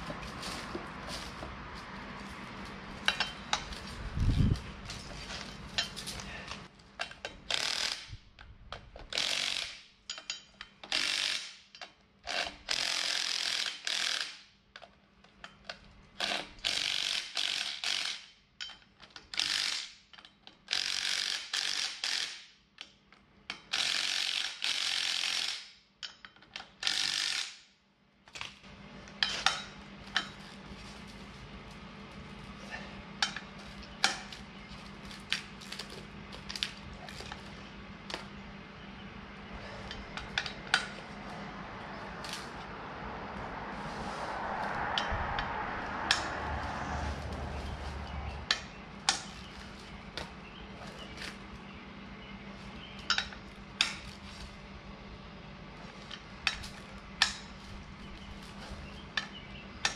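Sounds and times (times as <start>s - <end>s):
ratchet wrench clicking: 7.2s - 8.1s, 9.1s - 14.5s, 16.2s - 18.8s, 19.4s - 22.9s, 23.5s - 27.7s
steady low hum: 28.6s - 59.9s.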